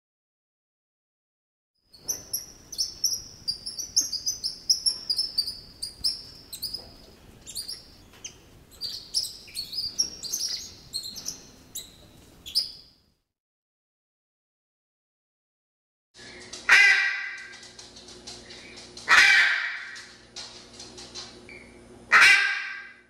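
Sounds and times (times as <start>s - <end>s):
coati chirping and squeaking: 1.9s - 12.9s.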